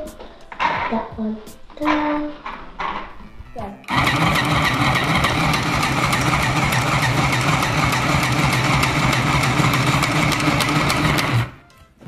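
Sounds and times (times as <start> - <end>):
sewing machine running: 3.9 - 11.6.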